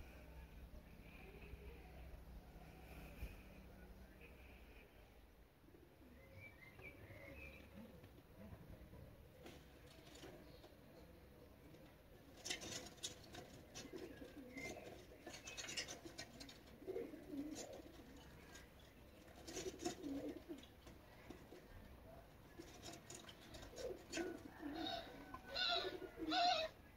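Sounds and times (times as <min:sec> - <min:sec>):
dove cooing: 0:11.7 - 0:26.9.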